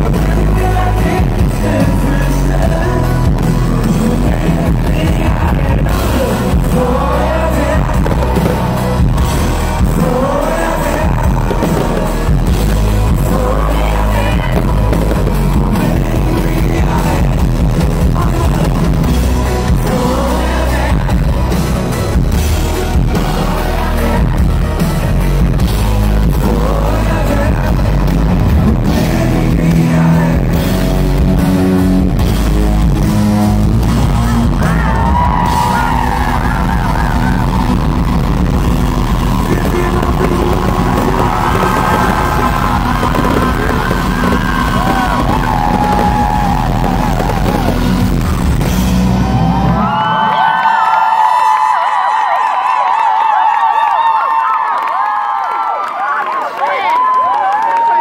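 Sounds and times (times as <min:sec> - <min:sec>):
man singing: 0:00.0 - 0:22.2, 0:26.1 - 0:31.6, 0:39.4 - 0:47.9
live pop band with drums: 0:00.0 - 0:52.8.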